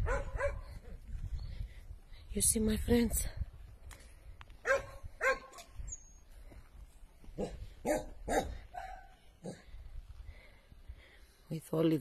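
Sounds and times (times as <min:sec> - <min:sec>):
dog barking: 0:00.0 - 0:00.7, 0:04.6 - 0:05.6, 0:07.4 - 0:09.6.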